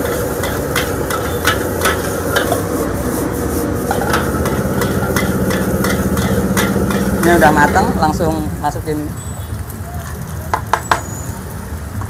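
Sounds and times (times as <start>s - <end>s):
metal spatula scraping a wok: 0.0s - 8.3s
food sizzling: 0.0s - 12.0s.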